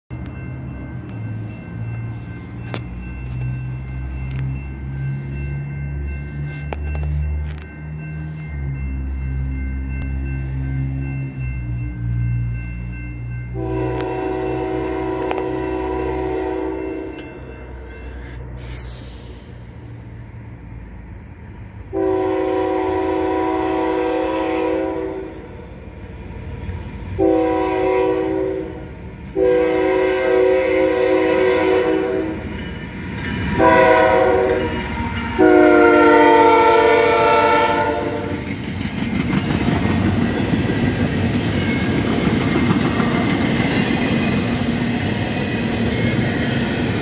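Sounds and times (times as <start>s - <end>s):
train cars rumbling on rails: 0.1s - 47.0s
locomotive air horn blasts: 13.5s - 17.2s, 21.9s - 25.4s, 27.2s - 28.8s, 29.4s - 32.4s, 33.6s - 38.4s.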